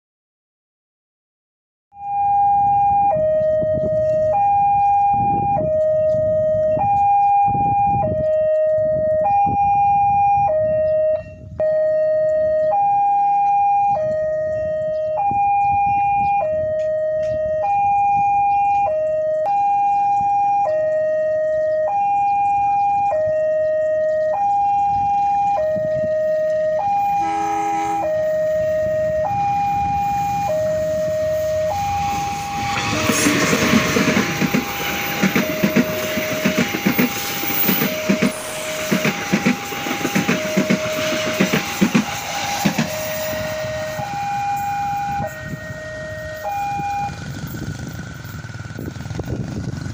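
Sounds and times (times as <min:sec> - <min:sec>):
level crossing alarm two-tone: 0:01.9 - 0:47.4
locomotive horn blast: 0:24.9 - 0:47.4.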